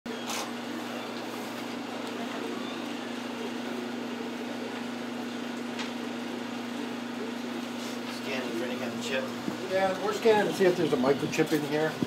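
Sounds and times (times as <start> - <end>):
steady machine hum: 0.1 - 12.0.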